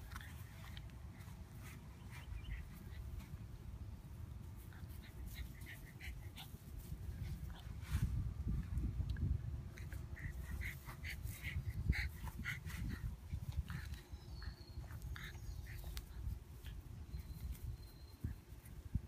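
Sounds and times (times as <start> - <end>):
puppies yipping and squeaking: 0.0 - 3.4, 9.8 - 18.8
steady low rumble: 0.0 - 19.0.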